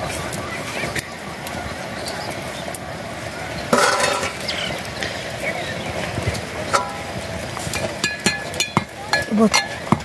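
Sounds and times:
metal cookware clinking: 0:03.7 - 0:04.4, 0:06.7 - 0:07.1, 0:07.8 - 0:10.0
ringing metal clatter: 0:06.7 - 0:07.1.

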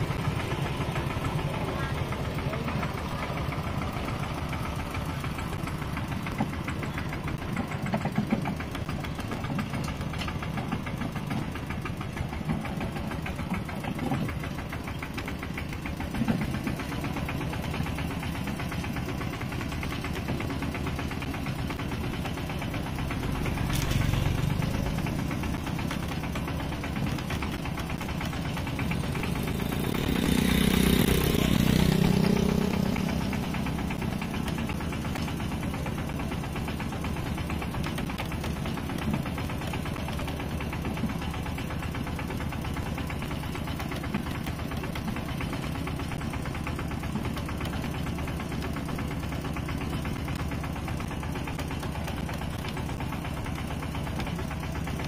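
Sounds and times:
tractor engine knocking: 0:00.0 - 0:55.0.

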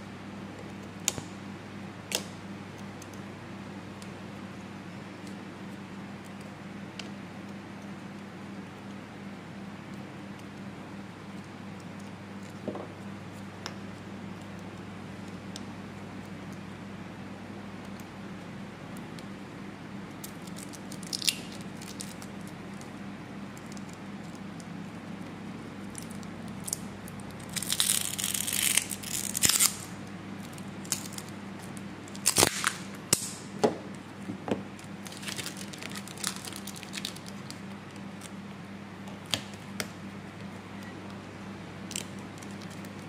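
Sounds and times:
low steady hum: 0:00.0 - 0:43.0
tape crinkling and tearing: 0:20.2 - 0:22.9, 0:25.9 - 0:33.4, 0:34.8 - 0:38.4, 0:41.9 - 0:43.0.

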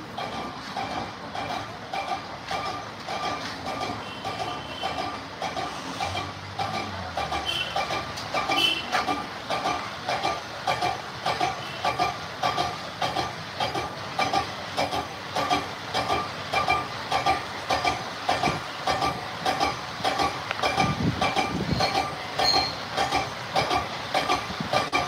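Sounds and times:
lathe metallic clatter: 0:00.0 - 0:25.0.

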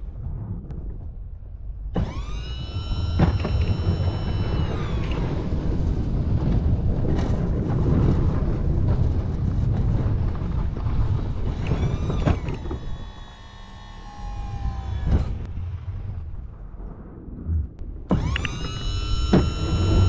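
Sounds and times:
high hydraulic whine: 0:02.0 - 0:07.3, 0:11.1 - 0:16.6, 0:18.1 - 0:20.0
snowplow engine rumbling: 0:02.0 - 0:20.0.

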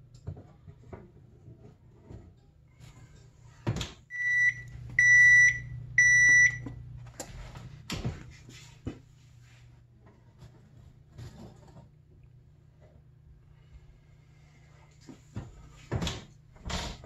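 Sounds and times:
low steady hum: 0:00.0 - 0:17.0
long electronic beeps: 0:04.1 - 0:06.6.

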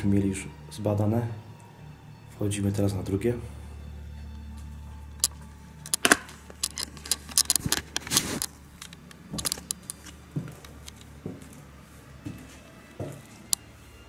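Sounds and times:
footsteps on stairs: 0:09.2 - 0:13.4.

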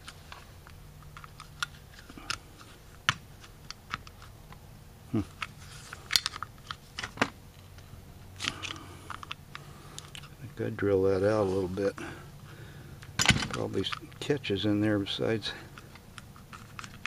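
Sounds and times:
screwdriver clicking and scraping metal: 0:15.8 - 0:17.0.

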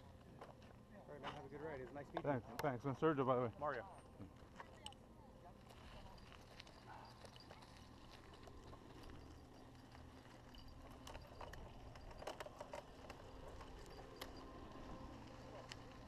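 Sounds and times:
bike rolling over dirt: 0:05.6 - 0:16.0
light clicks and taps from bike: 0:05.7 - 0:16.0.

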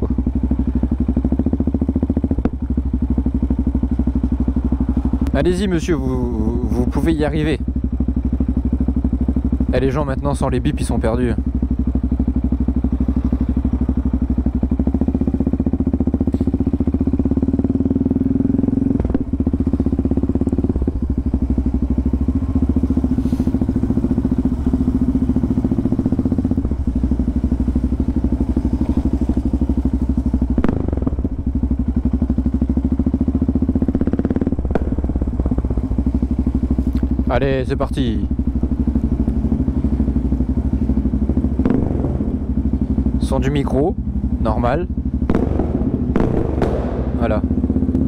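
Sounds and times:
motorcycle engine idling: 0:00.0 - 0:48.0
engine knocks: 0:15.1 - 0:48.0.

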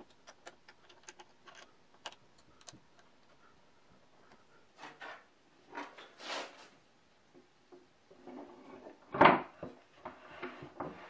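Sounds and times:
wooden rubs and knocks: 0:08.1 - 0:11.0.

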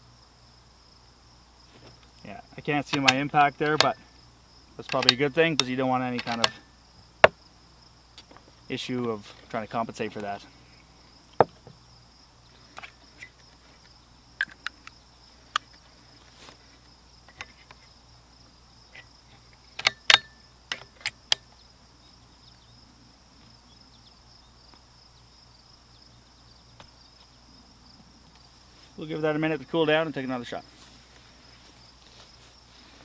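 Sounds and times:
crickets chirring: 0:00.0 - 0:33.0
rifle bolt metallic clicks: 0:02.8 - 0:04.0, 0:04.8 - 0:06.6, 0:19.8 - 0:21.5.

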